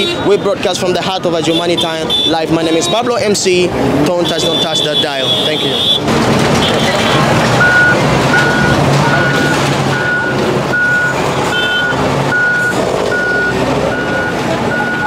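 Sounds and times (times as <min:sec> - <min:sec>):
diesel engine running: 0:05.2 - 0:15.0
reversing alarm beeping: 0:06.6 - 0:15.0.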